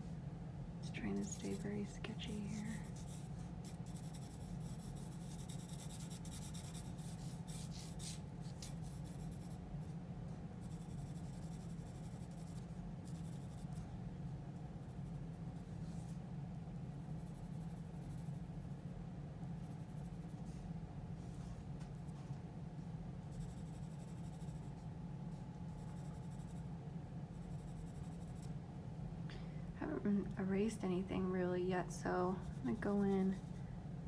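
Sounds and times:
pencil scratching on paper: 0:01.1 - 0:09.6, 0:10.6 - 0:13.8, 0:23.3 - 0:24.8, 0:32.4 - 0:33.5.

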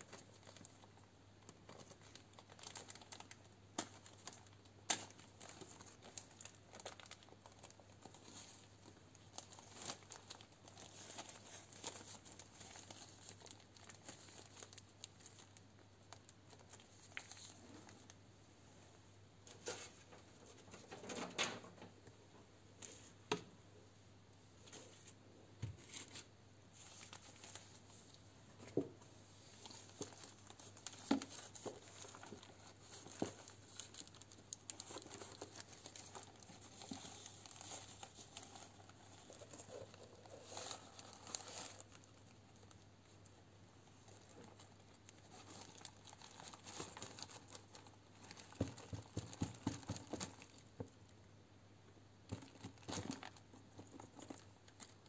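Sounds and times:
plastic bag crinkling: 0:00.0 - 0:18.1, 0:29.4 - 0:43.2, 0:44.0 - 0:50.8, 0:52.3 - 0:55.0.

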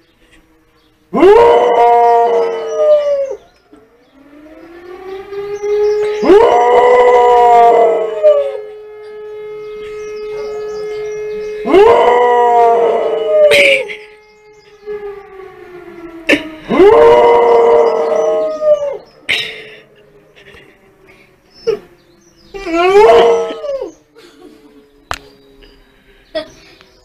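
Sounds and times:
distant siren: 0:00.0 - 0:27.0
dog howling: 0:01.1 - 0:03.4, 0:06.2 - 0:08.7, 0:11.6 - 0:13.9, 0:16.7 - 0:19.0, 0:22.5 - 0:24.0.

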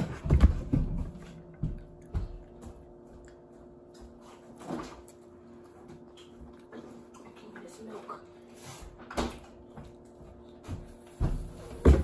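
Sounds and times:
table and chair thumps: 0:11.3 - 0:12.0.

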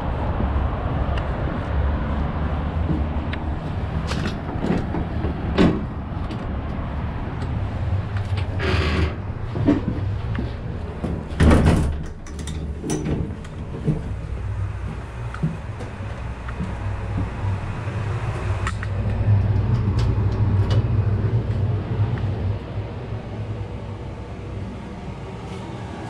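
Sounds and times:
heavy steel doors clanking: 0:08.4 - 0:21.1
low rumble: 0:12.1 - 0:26.0.

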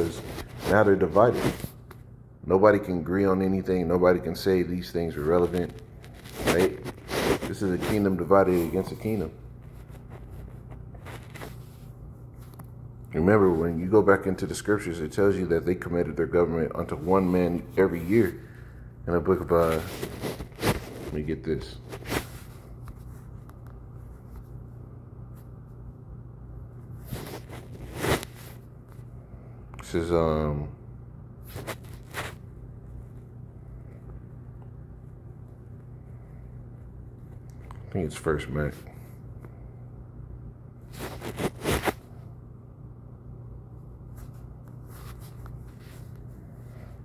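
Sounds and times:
rustling scrape: 0:00.0 - 0:01.9, 0:05.1 - 0:12.6, 0:19.4 - 0:23.4, 0:27.0 - 0:29.1, 0:31.4 - 0:32.5, 0:40.8 - 0:42.2, 0:44.1 - 0:47.0
steady low hum: 0:00.0 - 0:47.0.

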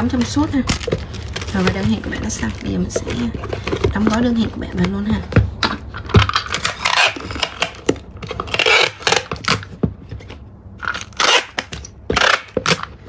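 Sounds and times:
packing tape ripping: 0:06.3 - 0:09.7, 0:10.8 - 0:13.0
tape dispenser knocking on box: 0:10.9 - 0:12.9.

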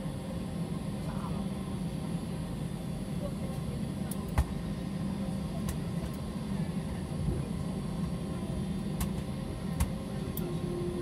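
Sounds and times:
aircraft cabin drone: 0:00.0 - 0:11.0.

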